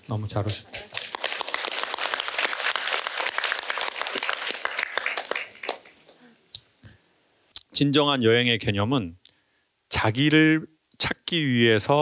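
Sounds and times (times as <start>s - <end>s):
audience applauding: 0.6s - 6.2s.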